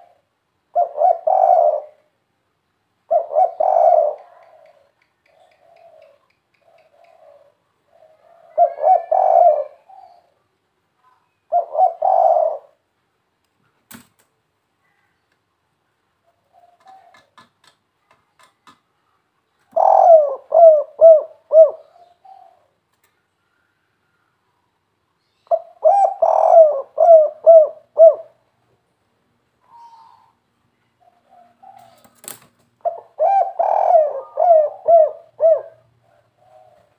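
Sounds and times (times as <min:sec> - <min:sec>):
dove cooing: 0:00.0 - 0:02.1, 0:03.1 - 0:10.4, 0:11.5 - 0:12.8, 0:16.2 - 0:17.4, 0:19.6 - 0:22.8, 0:25.5 - 0:28.4, 0:31.0 - 0:36.9.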